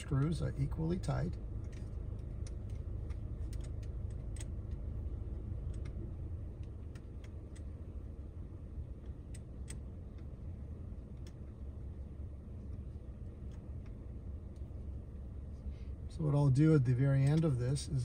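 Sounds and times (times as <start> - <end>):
low rumble in car cabin: 0.0 - 18.0.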